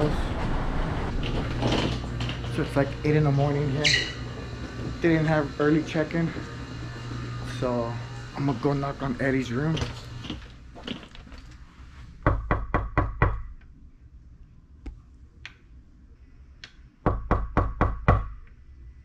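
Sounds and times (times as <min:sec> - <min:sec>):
knuckles knocking on door: 0:12.2 - 0:13.5, 0:17.1 - 0:18.4.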